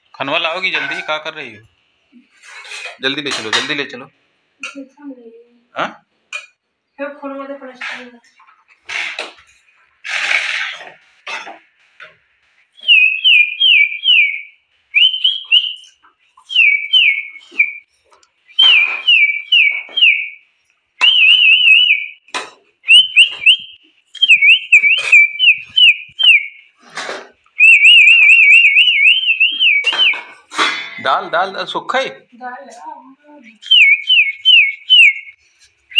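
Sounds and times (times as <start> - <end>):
person whistling: 12.8 - 17.9, 18.5 - 20.4, 21.0 - 22.2, 22.9 - 26.6, 27.6 - 30.2, 33.4 - 35.4.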